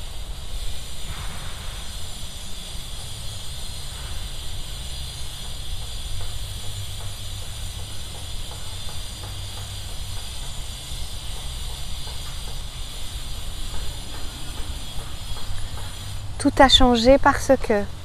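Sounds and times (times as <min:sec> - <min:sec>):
steady high hiss: 0:00.0 - 0:18.0
wind rumbling on microphone: 0:12.7 - 0:17.2.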